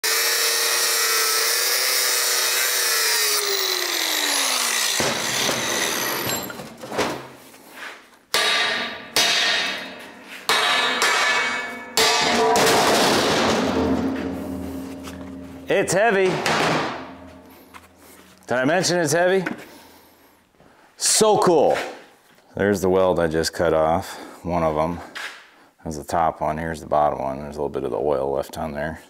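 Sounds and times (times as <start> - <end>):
power tool winding down: 0.0 - 6.5.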